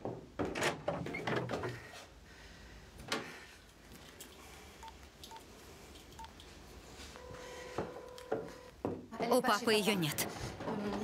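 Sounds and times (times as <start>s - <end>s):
mobile phone keypad beeps: 6.2s - 6.4s.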